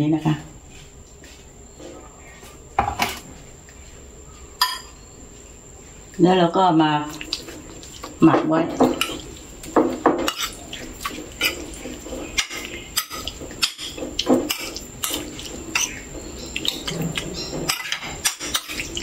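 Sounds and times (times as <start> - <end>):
spoon scraping a ceramic plate: 10.2 - 19.0.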